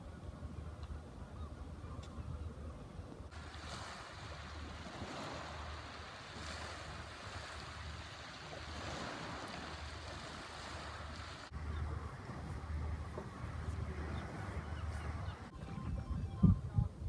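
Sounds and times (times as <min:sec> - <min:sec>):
wind rumbling on microphone: 0:00.0 - 0:17.0
sea waves washing: 0:03.3 - 0:15.7.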